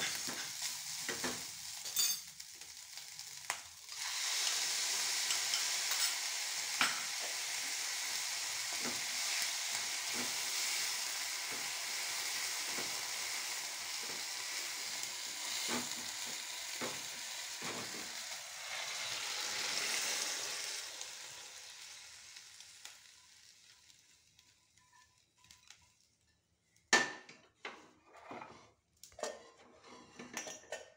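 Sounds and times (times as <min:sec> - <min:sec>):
rice sizzling in a pan: 0:00.0 - 0:26.9
steel utensils clinking: 0:01.8 - 0:02.3.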